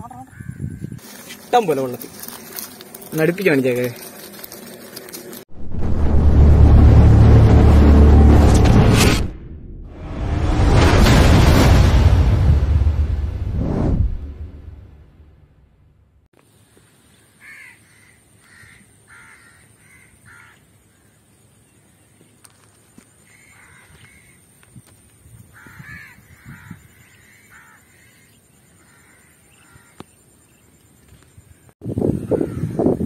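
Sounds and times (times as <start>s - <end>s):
crows cawing: 0.1s - 1.2s, 17.4s - 21.2s, 23.2s - 24.4s, 25.5s - 30.1s, 32.2s - 33.0s.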